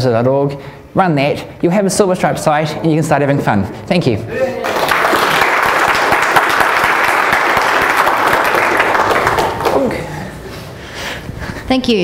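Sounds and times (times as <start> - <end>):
audience applauding: 4.5 - 10.2.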